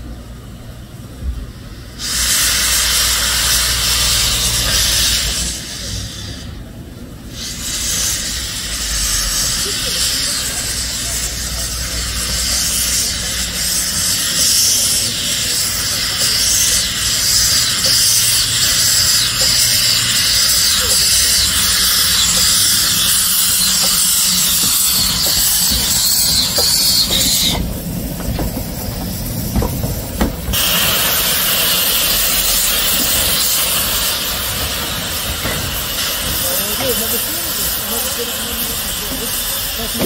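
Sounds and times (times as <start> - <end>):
steam locomotive hissing steam: 0.0 - 40.0.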